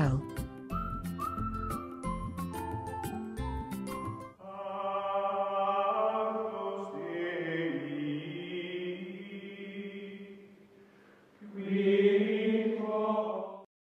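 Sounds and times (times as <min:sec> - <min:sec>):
choir-like voices chanting: 0:04.4 - 0:10.4, 0:11.4 - 0:13.7.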